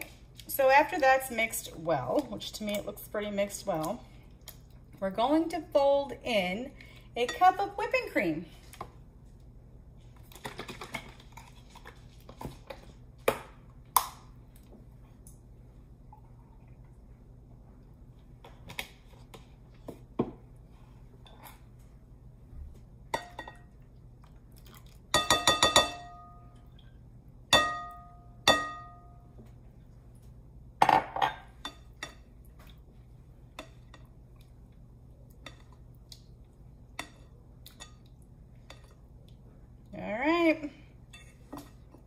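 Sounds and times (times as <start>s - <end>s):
utensil clinking on glass bowl: 25.1s - 26.4s.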